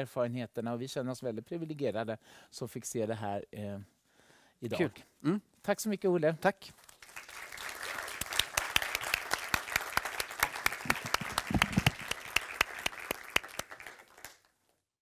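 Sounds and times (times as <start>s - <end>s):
audience applause: 6.9s - 14.5s
sharp hand claps close by: 7.6s - 14.4s.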